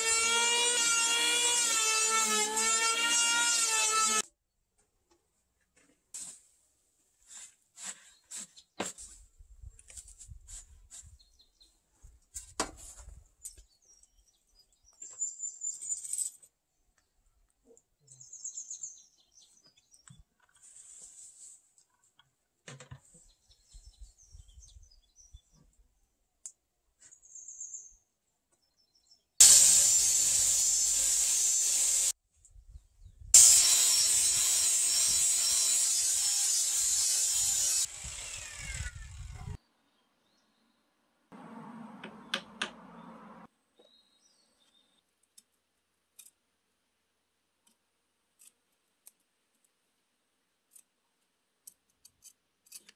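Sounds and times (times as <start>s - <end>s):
angle grinder on wood: 0.0s - 4.2s, 29.4s - 32.2s, 33.4s - 39.6s.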